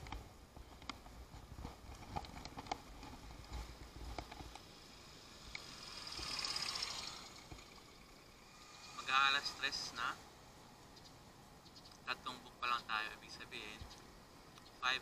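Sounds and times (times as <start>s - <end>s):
motor scooter passing: 2.8s - 11.0s.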